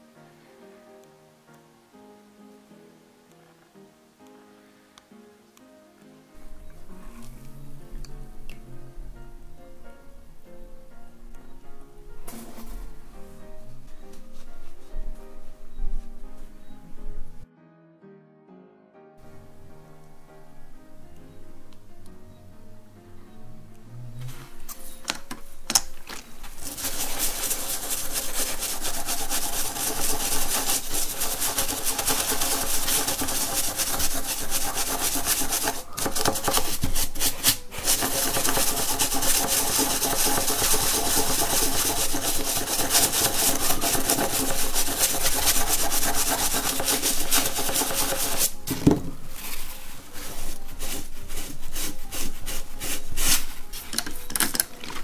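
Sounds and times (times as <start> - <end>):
toothbrush scrubbing a coin: 26.4 - 48.6, 49.6 - 55.0.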